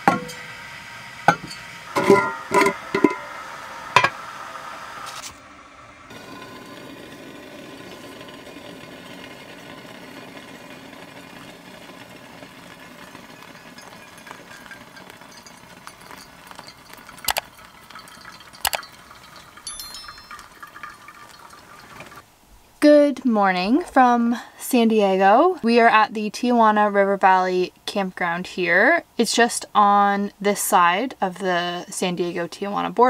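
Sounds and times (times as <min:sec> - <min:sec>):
water trickling onto coffee grounds: 0:06.1 - 0:22.2
sharp glass clinks: 0:13.8 - 0:20.9.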